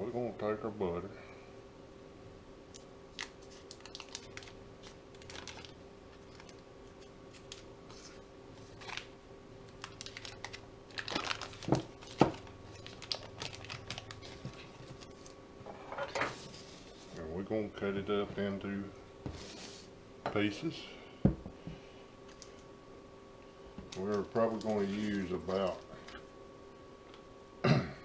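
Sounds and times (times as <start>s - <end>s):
paper wrapper crinkling: 3.1s - 15.4s, 23.9s - 26.2s.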